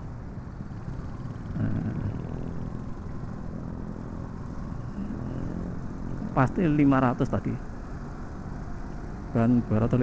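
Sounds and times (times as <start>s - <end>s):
motorcycle engine running: 0.0s - 7.0s
wind and road noise: 0.0s - 10.0s.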